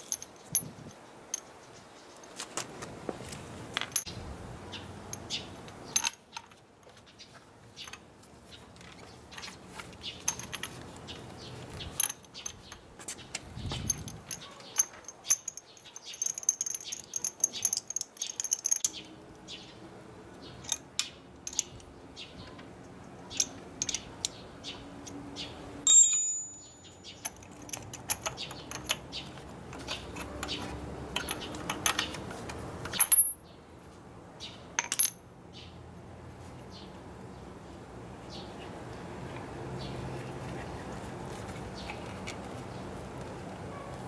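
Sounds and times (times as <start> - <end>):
metallic clinks ringing: 25.8 - 29.0.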